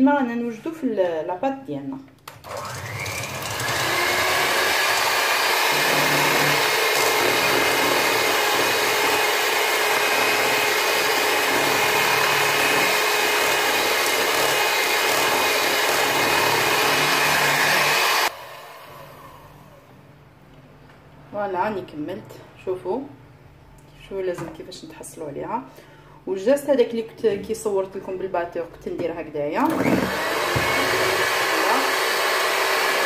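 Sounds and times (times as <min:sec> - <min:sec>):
electric hand mixer running: 0:02.4 - 0:19.9, 0:29.6 - 0:33.0.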